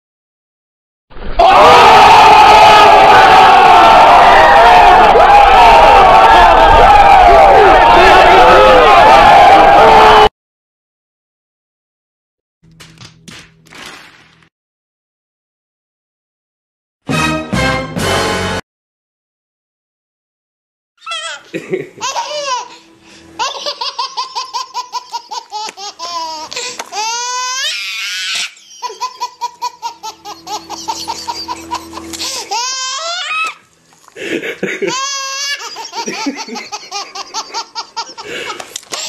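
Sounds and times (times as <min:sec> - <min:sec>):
baby squealing: 0:21.0 - 0:21.4, 0:23.4 - 0:33.6, 0:34.9 - 0:38.2
baby laughing: 0:21.0 - 0:22.8, 0:23.4 - 0:33.6, 0:34.4 - 0:39.0.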